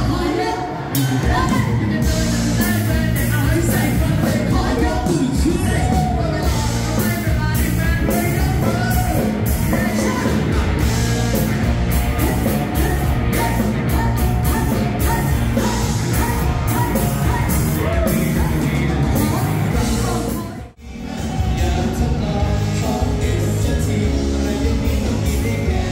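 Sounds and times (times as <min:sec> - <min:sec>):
person singing: 0:00.0 - 0:11.5, 0:12.1 - 0:25.9
band music over sound system: 0:00.0 - 0:25.9
strong bass: 0:00.0 - 0:25.9.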